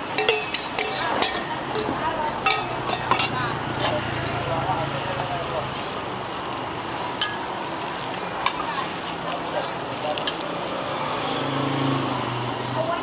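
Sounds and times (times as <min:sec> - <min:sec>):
flatbread sizzling on griddle: 0:00.0 - 0:13.0.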